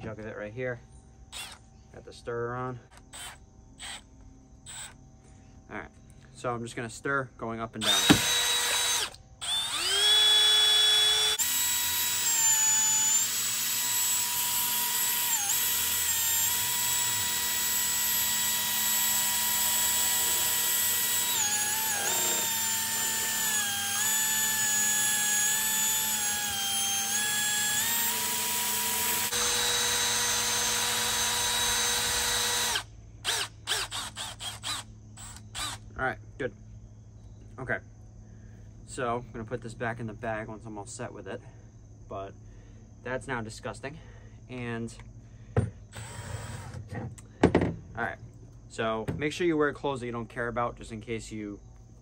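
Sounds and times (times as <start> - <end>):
cordless drill motor whining: 1.3 - 1.7, 2.9 - 5.0, 7.8 - 35.8, 45.6 - 47.0.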